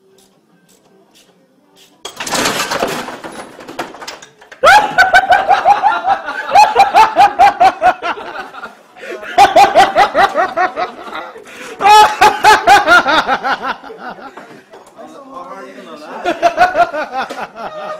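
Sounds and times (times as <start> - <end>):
person laughing hard: 4.6 - 14.4, 16.2 - 17.9.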